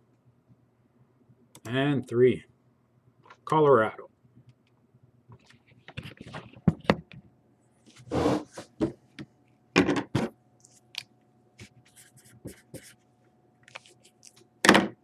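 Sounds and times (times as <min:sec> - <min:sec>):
card sliding on tabletop: 0:07.9 - 0:08.9
marker writing on paper: 0:11.9 - 0:13.0.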